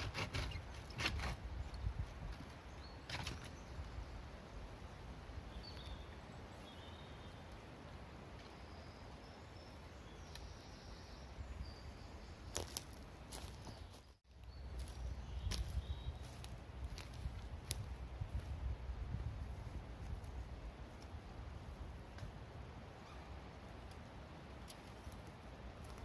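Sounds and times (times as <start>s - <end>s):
faint high bird chirps: 8.4s - 12.8s, 13.6s - 16.4s, 23.0s - 23.4s
footsteps on forest floor: 12.5s - 18.6s.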